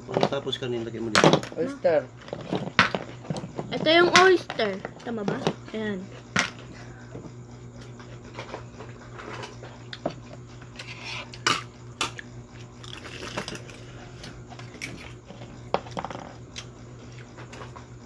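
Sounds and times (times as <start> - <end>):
chewing: 12.8 - 13.8.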